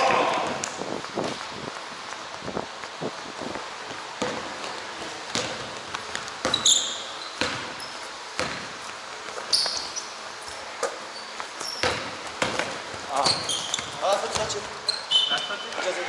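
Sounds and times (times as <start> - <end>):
sneakers squeaking on court: 3.7 - 15.9
basketball bouncing on wooden floor: 4.2 - 8.8, 11.6 - 14.8.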